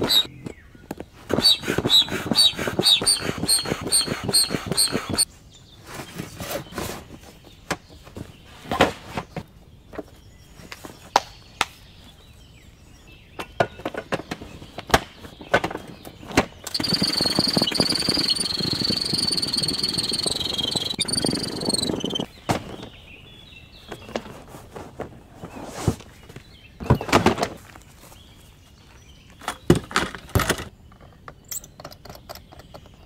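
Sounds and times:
foot pump air rush with whistle: 0.0 - 0.3, 1.3 - 5.2, 16.7 - 22.3
clicks and knocks handling parts: 29.4 - 33.0.

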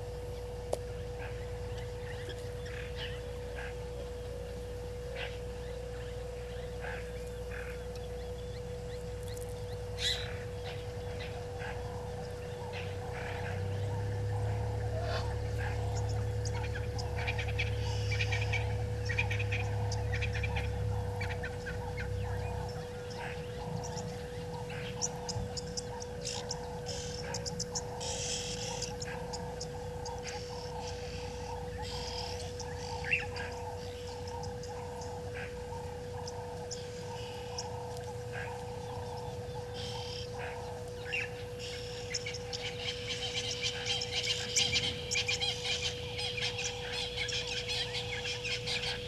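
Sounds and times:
constant steady tone: 0.0 - 49.0
low background rumble: 0.0 - 49.0
bird chirps and calls: 5.1 - 49.0.

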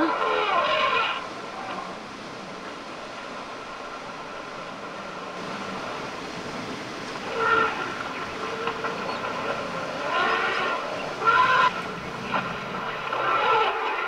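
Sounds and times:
elephants trumpeting: 0.0 - 2.0, 7.2 - 14.0.

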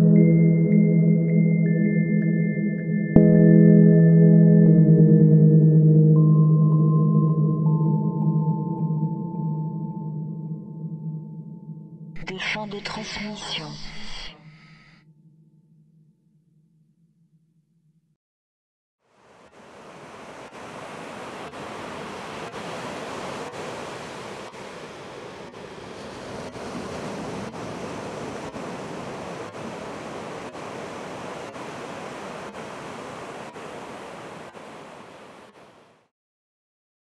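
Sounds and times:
surf washing onto beach: 19.1 - 36.1.

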